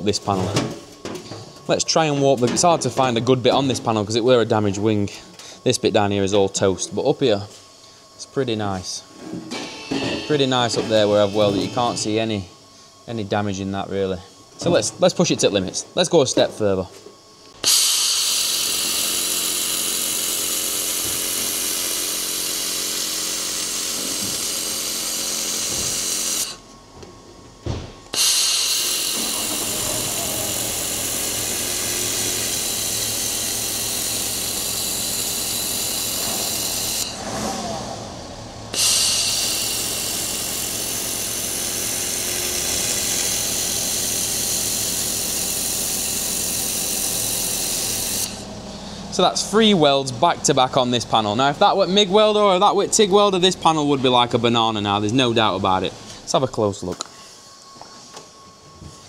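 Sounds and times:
laser welder hissing: 7.2s - 15.4s, 17.4s - 26.7s, 28.0s - 37.3s, 38.6s - 50.0s.

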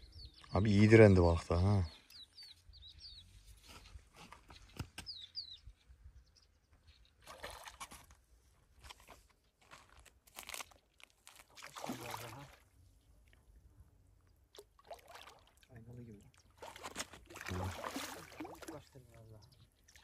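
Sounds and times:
small bird chirping: 0.0s - 0.8s, 2.0s - 7.3s.

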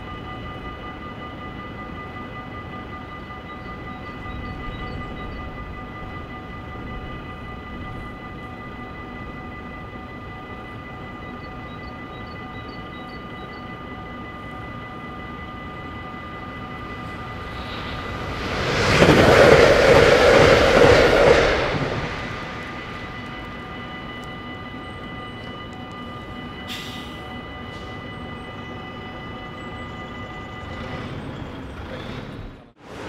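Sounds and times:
crossing warning bell ringing: 0.0s - 31.9s
train rumbling past: 14.9s - 33.0s.

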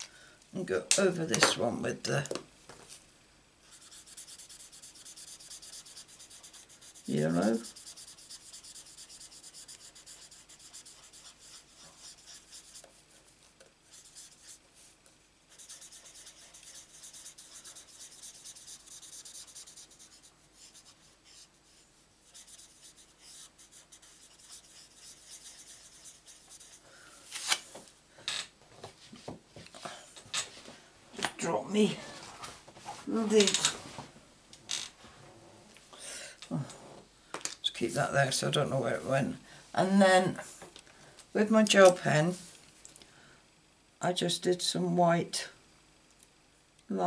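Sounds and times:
marker rubbing on cardstock: 3.7s - 13.0s, 13.9s - 14.6s, 15.5s - 26.8s.

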